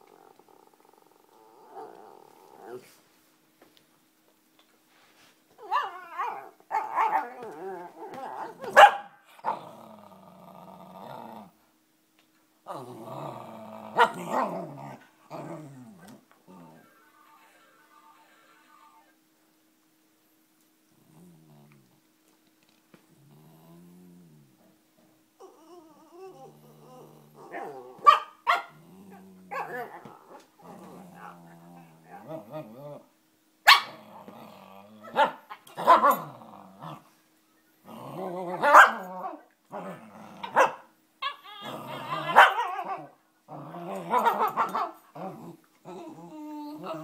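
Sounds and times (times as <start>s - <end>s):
dogs growling and snarling: 0.0s - 3.0s, 5.9s - 11.6s, 12.7s - 16.8s, 20.9s - 22.0s, 23.0s - 28.0s, 28.7s - 33.1s, 33.9s - 37.2s, 37.8s - 40.8s, 41.5s - 47.0s
dog barking: 8.7s - 9.2s, 28.0s - 28.7s, 33.7s - 34.0s, 35.1s - 36.2s, 38.6s - 39.1s, 40.5s - 40.9s, 42.3s - 42.7s.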